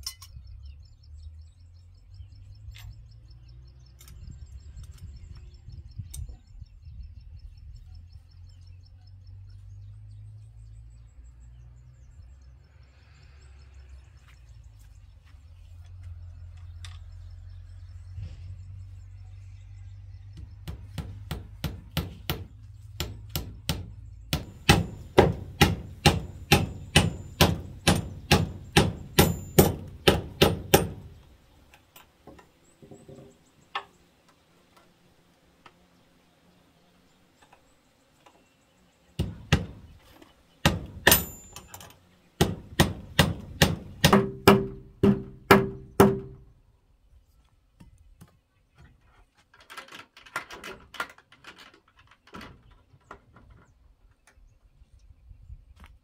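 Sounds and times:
hammer striking nails into wood: 20.6s - 31.2s, 39.2s - 39.9s, 40.6s - 41.7s, 42.4s - 46.4s.

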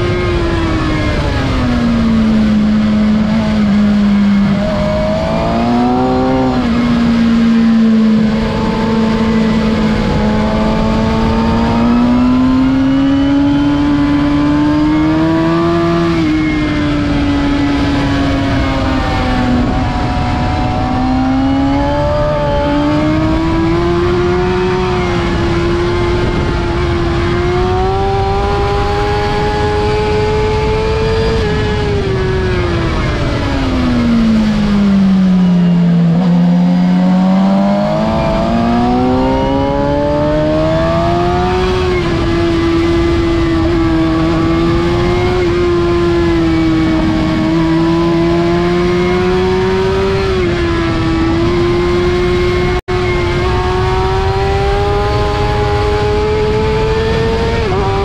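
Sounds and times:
motorcycle engine at high revs: 0.0s - 58.0s
wind rush: 0.0s - 58.0s.

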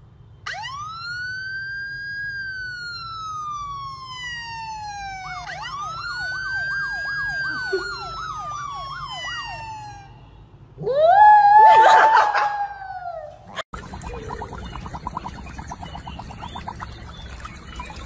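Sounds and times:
siren wailing: 0.4s - 13.6s
siren yelp: 0.4s - 13.6s.

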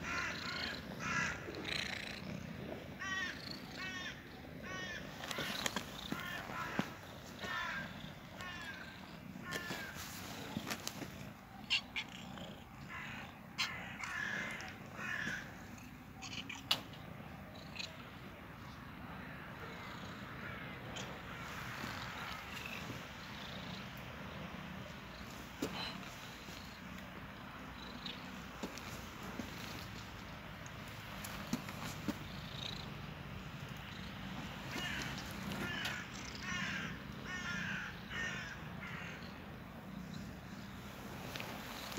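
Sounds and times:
harsh animal calls: 0.0s - 16.8s.

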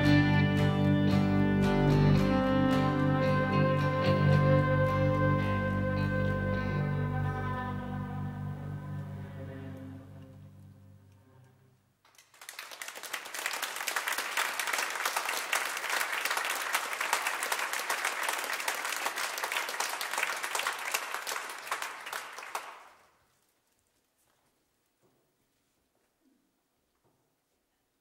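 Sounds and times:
audience applauding: 12.1s - 23.1s.

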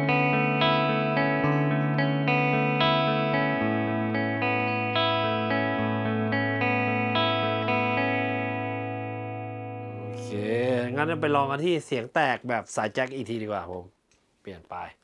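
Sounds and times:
clean electric guitar arpeggio: 0.0s - 11.7s.

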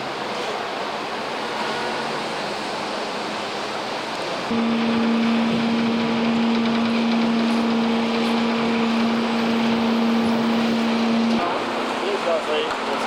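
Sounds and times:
street traffic noise: 0.0s - 13.0s
steady low hum: 4.5s - 12.1s.

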